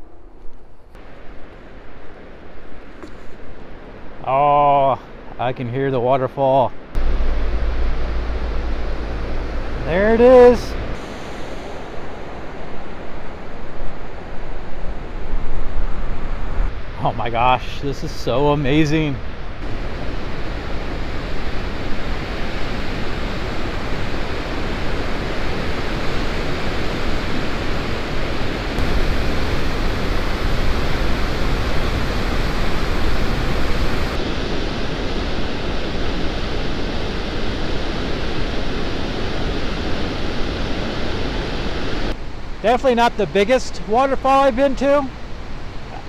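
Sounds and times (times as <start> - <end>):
waterfall rushing: 7.0 - 12.1, 19.6 - 34.2.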